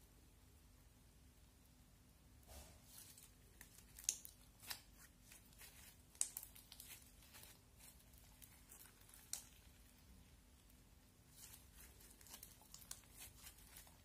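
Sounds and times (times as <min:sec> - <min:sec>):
slime crackling and popping: 0:02.9 - 0:14.0.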